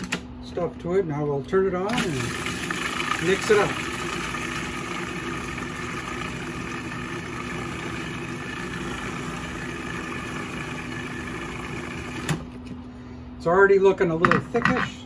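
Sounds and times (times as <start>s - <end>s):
food processor motor running: 1.9s - 12.6s.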